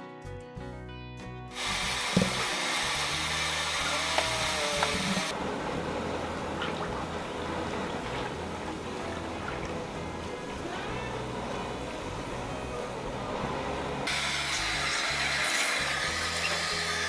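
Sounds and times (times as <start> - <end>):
background music: 0.0 - 17.0
liquid pouring hiss: 1.5 - 5.3.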